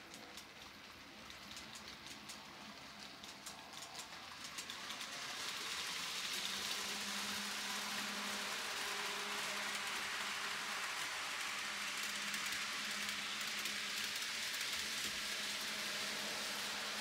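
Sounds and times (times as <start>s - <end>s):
wheels clicking over rail joints: 0.0s - 8.4s
model train rolling hiss: 0.0s - 17.0s.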